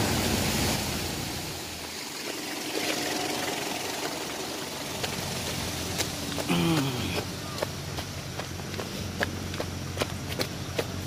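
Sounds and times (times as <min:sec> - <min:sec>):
faint truck engine running: 0:00.0 - 0:11.0
river water rushing over rocks: 0:00.0 - 0:11.0.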